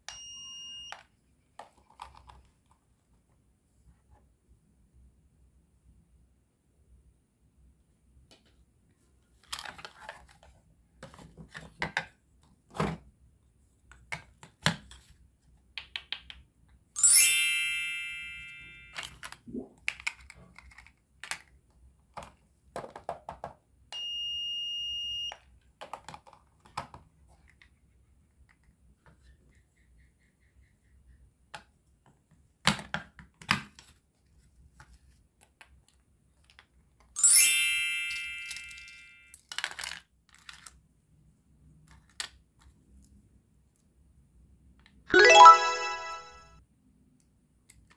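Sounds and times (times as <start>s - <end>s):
bright ringing chime: 17.0s - 19.0s, 37.2s - 39.3s, 45.1s - 46.5s.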